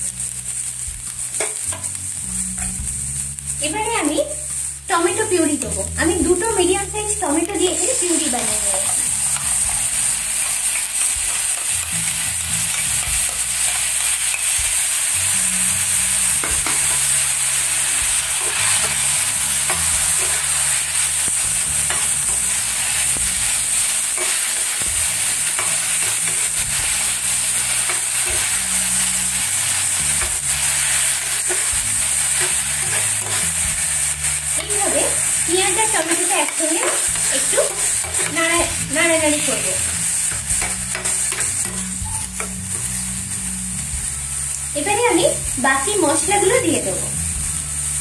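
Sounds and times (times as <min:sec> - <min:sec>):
onions sizzling in hot oil: 0:00.0 - 0:48.0
metal spatula scraping pan: 0:16.0 - 0:23.3, 0:24.0 - 0:35.4, 0:36.0 - 0:43.0.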